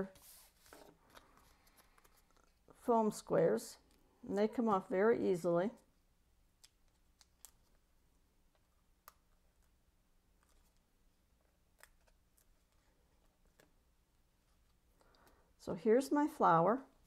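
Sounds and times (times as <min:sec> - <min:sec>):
paper backing rustling: 0:00.0 - 0:02.6.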